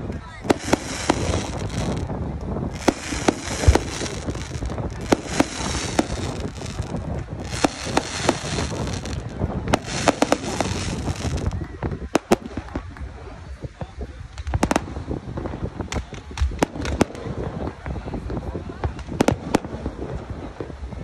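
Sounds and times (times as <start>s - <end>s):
fireworks bursting: 0.0s - 13.1s, 14.3s - 17.9s, 18.8s - 20.2s
fireworks hissing: 0.4s - 12.7s.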